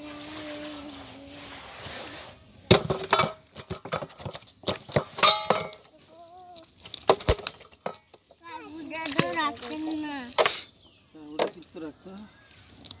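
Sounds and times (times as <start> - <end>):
faint steady hiss: 0.0 - 3.6
sharp clinks and knocks: 4.8 - 5.9.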